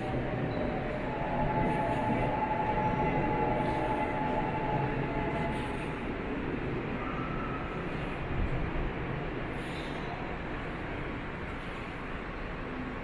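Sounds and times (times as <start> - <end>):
high whine: 0.0 - 8.5
subway train rumble: 0.0 - 13.0.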